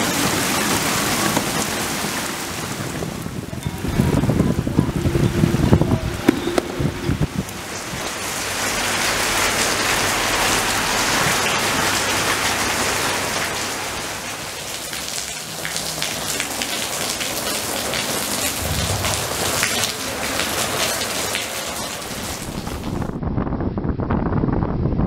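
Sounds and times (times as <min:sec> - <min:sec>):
heavy rain on wet paving: 0:00.0 - 0:23.2
close drips and splashes: 0:06.2 - 0:23.1.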